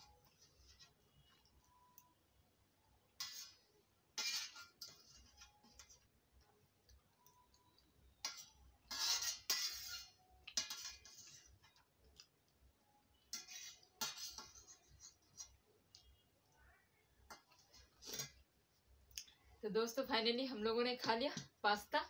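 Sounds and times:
metal spoon scraping steel plate: 3.2 - 6.1, 8.2 - 11.6, 13.3 - 15.6, 17.3 - 18.4.

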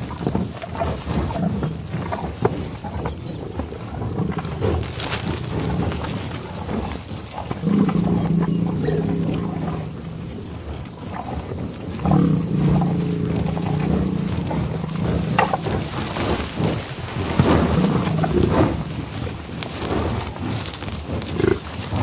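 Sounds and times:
livestock bellowing and lowing: 7.6 - 10.3, 11.1 - 16.9.

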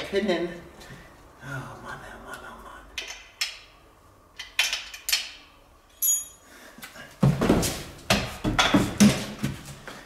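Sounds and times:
short metallic clink: 5.9 - 6.4
knocks and clatter of frame: 7.2 - 9.5.

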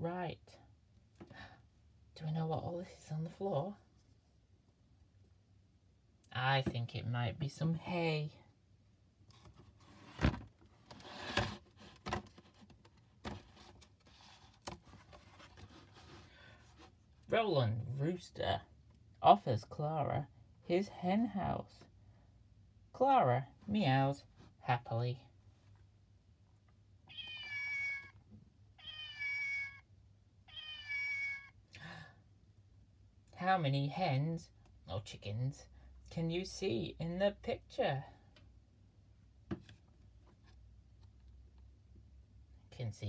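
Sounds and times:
electronic cat meow: 27.1 - 28.2, 28.8 - 29.8, 30.5 - 31.6.

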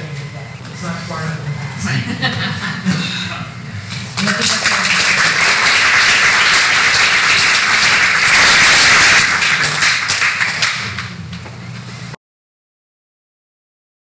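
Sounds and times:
audience applauding: 4.2 - 11.2.

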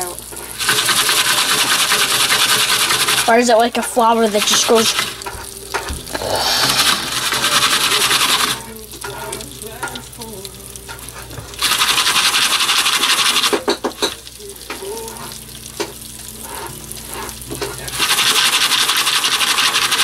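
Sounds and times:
kernels rattling in a foil pan: 0.0 - 5.5, 10.9 - 14.2, 16.5 - 20.0.

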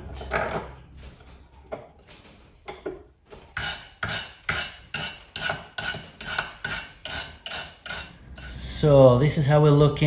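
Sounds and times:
wire brush scraping metal: 3.4 - 8.9.

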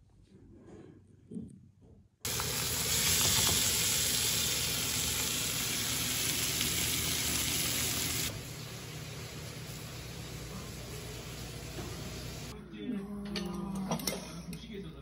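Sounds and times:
pork sizzling in a frying pan: 2.3 - 12.5.

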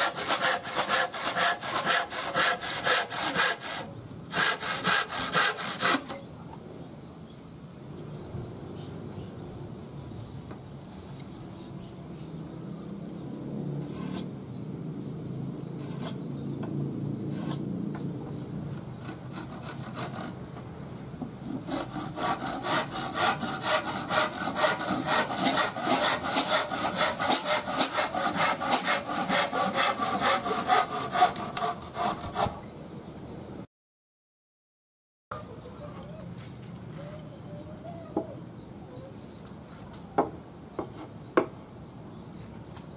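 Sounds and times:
hand saw cutting wood: 0.0 - 6.2, 13.8 - 14.3, 15.8 - 16.2, 17.3 - 17.7, 18.7 - 20.4, 21.4 - 32.6.

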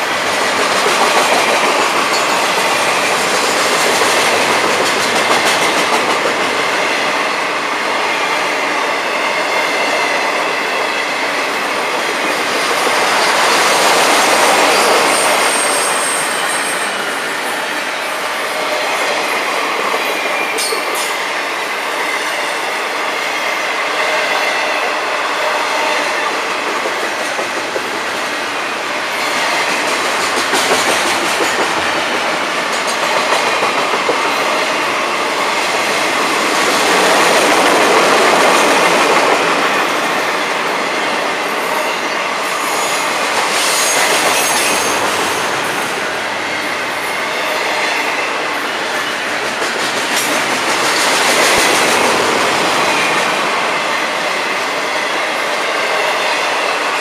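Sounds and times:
train wheels rumbling and clattering: 0.0 - 57.0
high squeal of wheels: 14.6 - 17.4, 42.6 - 45.2.

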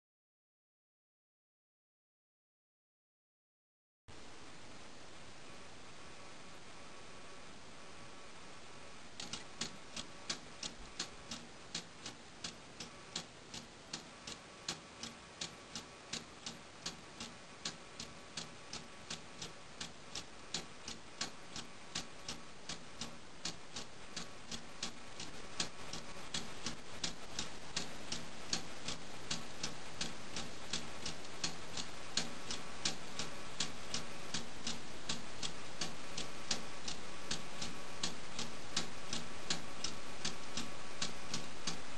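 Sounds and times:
clock ticking: 9.2 - 41.9.

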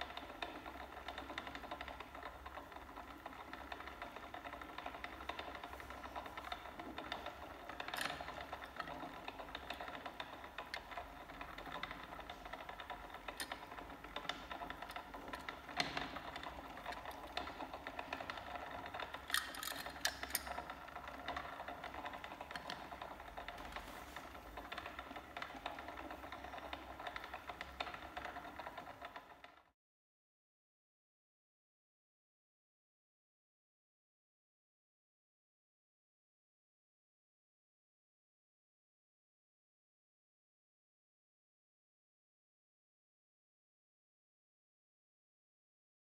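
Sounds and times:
toy van clicks and taps: 16.8 - 20.7.

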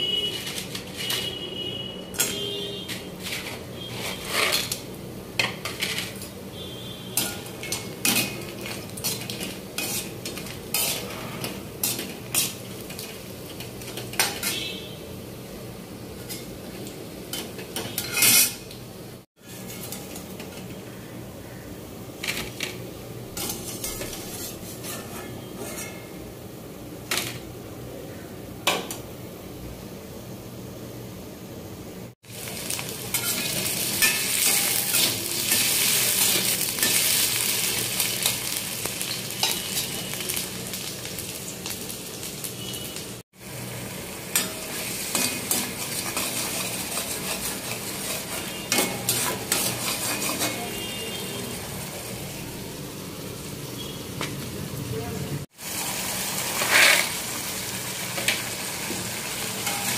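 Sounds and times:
low sizzle of frying: 0.0 - 59.9
metal skimmer scraping iron pan: 2.2 - 4.8, 7.2 - 14.7, 17.3 - 18.6, 23.4 - 26.1, 44.3 - 50.9, 56.6 - 57.2.

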